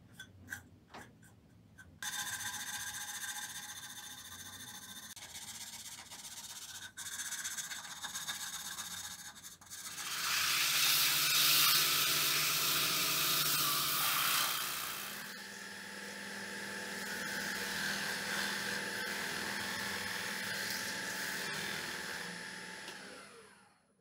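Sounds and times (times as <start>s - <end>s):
sandpaper on wooden bowl: 2.1s - 9.9s
lathe motor hum: 11.8s - 23.7s.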